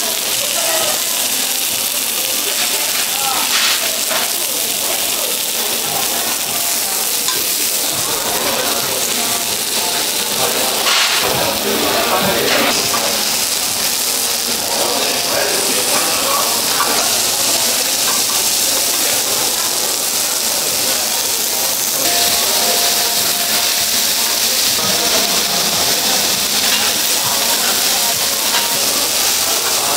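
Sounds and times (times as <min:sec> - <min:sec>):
meat sizzling on a grill: 0:00.0 - 0:29.9
metal tongs clinking on grill: 0:00.3 - 0:29.9.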